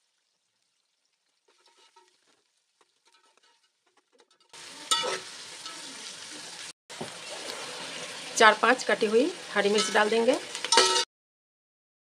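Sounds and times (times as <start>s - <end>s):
onions sizzling in oil: 0.0s - 11.1s
spoon scraping metal pot: 1.5s - 2.2s, 2.8s - 5.9s, 9.7s - 11.0s.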